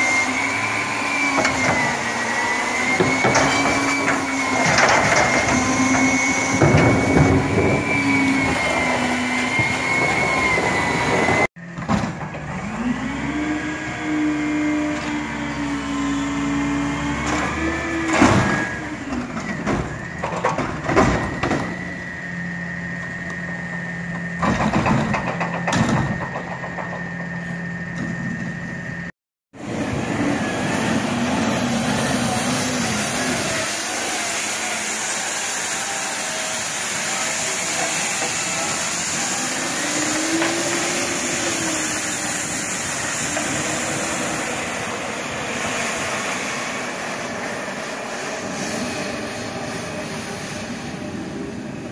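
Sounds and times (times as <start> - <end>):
diesel engines running: 0.0 - 51.9
street sweeper engine: 0.0 - 51.9
whining hydraulic pump: 0.0 - 51.9
cart clanking: 0.7 - 12.8.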